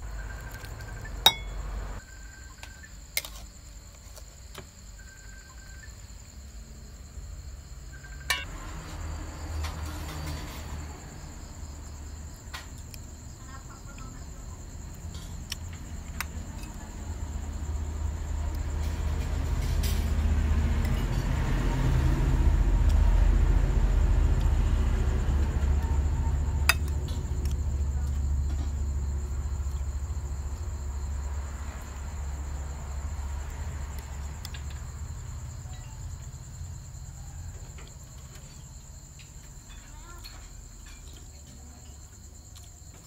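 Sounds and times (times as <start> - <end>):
crickets chirping: 0.0 - 43.0
passing vehicle rumble: 8.4 - 12.4, 15.8 - 38.3.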